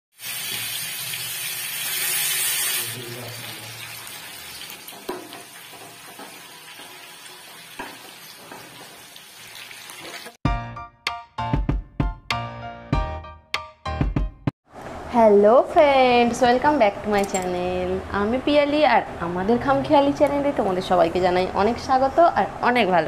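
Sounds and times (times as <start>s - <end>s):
chicken sizzling in hot oil: 0.1s - 10.4s
metal spoon knocking on pan: 4.9s - 7.0s, 7.7s - 9.0s
music: 10.4s - 14.5s.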